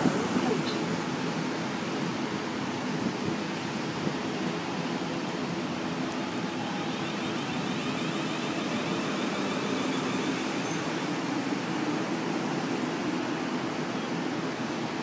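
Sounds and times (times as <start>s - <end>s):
electric train humming and hissing: 0.0s - 15.0s.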